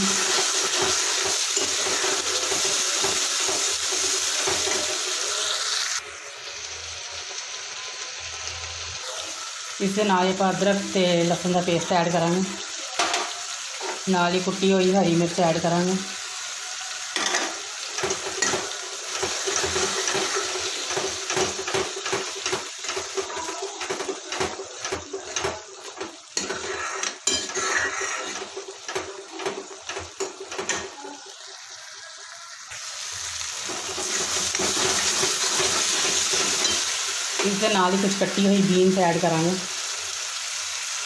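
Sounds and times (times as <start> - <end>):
spoon clinking and scraping pan: 0.0 - 5.2, 17.1 - 31.0, 33.6 - 37.7
frying sizzle: 0.0 - 41.0.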